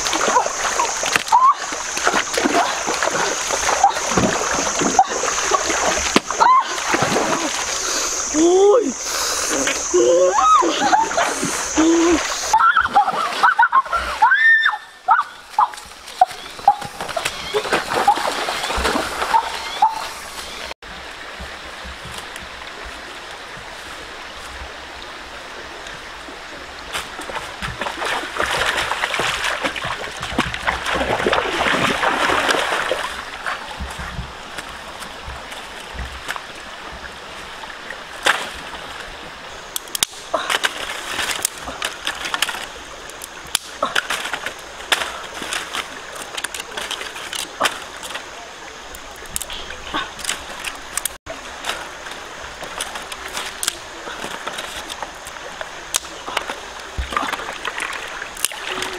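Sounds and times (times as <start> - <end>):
feet wading splashing water: 0.0 - 58.9
stream running: 0.0 - 58.9
wooden sticks clattering on stones: 39.8 - 48.3, 49.2 - 58.9.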